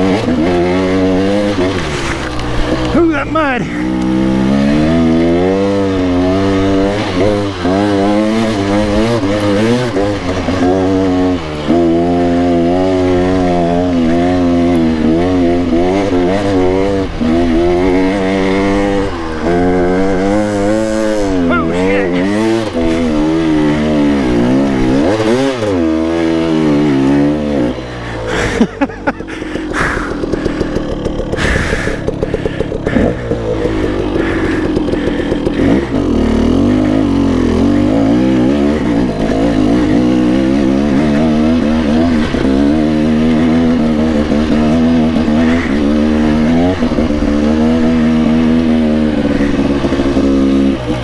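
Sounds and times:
two-stroke dirt bike engine revving: 0.0 - 51.0.

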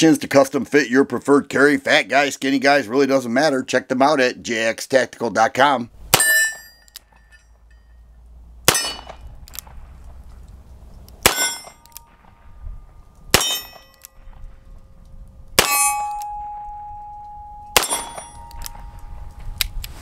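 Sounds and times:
steel target ringing: 6.1 - 8.1, 8.7 - 9.3, 11.2 - 14.4, 15.6 - 19.6.

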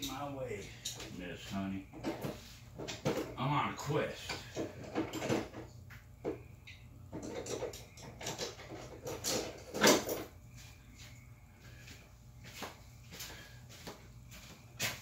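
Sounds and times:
tools knocking and rattling: 1.9 - 3.4, 4.2 - 6.5, 7.1 - 10.4.

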